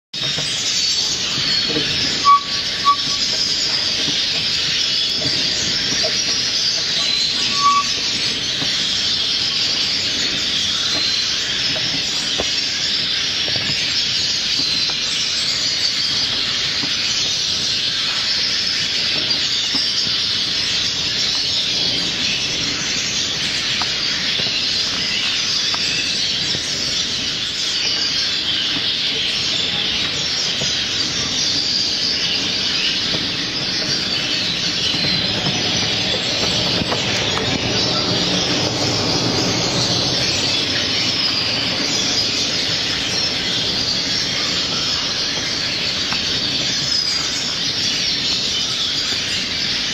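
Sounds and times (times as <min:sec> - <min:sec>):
small birds chirping: 0:00.2 - 0:49.9
short whistled notes: 0:02.2 - 0:03.3, 0:07.0 - 0:08.0.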